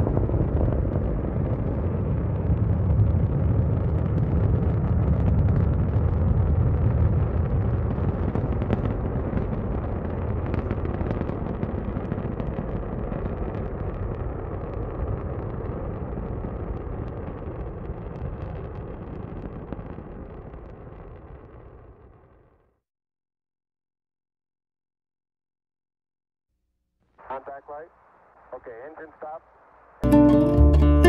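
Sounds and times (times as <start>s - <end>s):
rocket engines rumbling: 0.0s - 22.4s, 27.2s - 30.0s.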